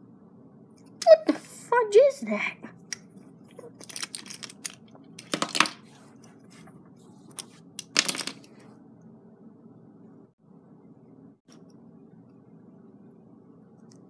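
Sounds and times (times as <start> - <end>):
plastic pieces clattering: 3.7 - 5.8, 7.8 - 8.5.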